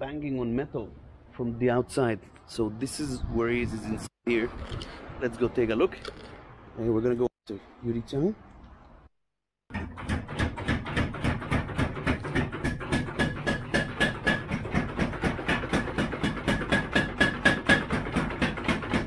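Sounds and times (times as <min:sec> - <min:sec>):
hammer pounding hot steel: 0:09.7 - 0:19.0.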